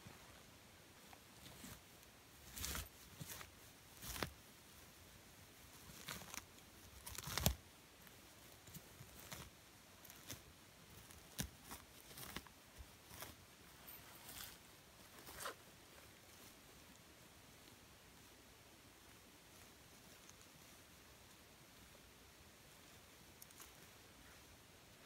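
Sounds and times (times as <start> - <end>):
moss tearing and rustling: 1.1 - 4.8, 5.6 - 13.5.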